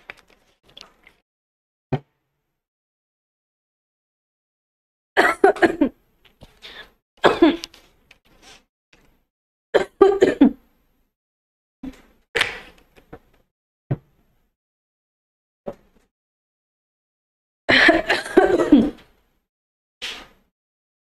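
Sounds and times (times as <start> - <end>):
woman coughing: 5.2 - 6.0, 7.2 - 7.7, 9.8 - 10.6, 17.7 - 19.0
woman clearing her nose: 6.6 - 7.7, 12.4 - 12.7.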